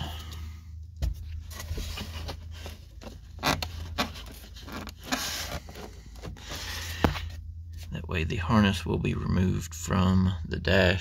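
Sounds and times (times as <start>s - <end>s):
steady low hum: 0.0s - 11.0s
hands scraping plastic panels: 1.7s - 7.2s.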